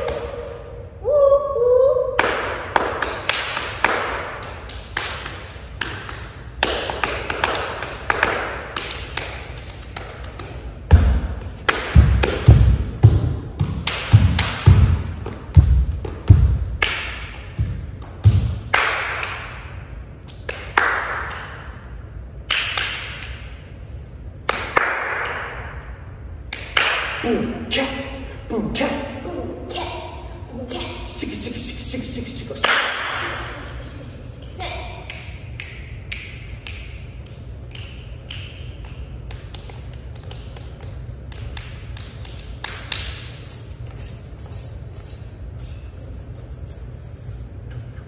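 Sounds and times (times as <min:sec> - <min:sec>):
hand claps: 0:02.2 - 0:11.0, 0:11.6 - 0:12.6, 0:13.8 - 0:15.4, 0:16.8 - 0:17.4, 0:18.0 - 0:19.6, 0:20.3 - 0:21.6, 0:22.5 - 0:23.5, 0:24.4 - 0:25.9, 0:26.5 - 0:27.2, 0:32.6 - 0:33.6, 0:34.6 - 0:45.2.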